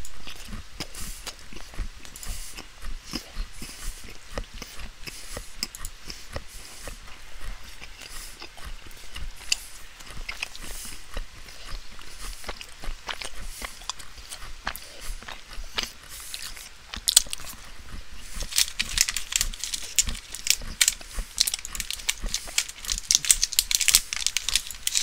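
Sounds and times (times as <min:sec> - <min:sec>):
clicks and crackles: 0:16.9 - 0:17.7, 0:18.3 - 0:25.0.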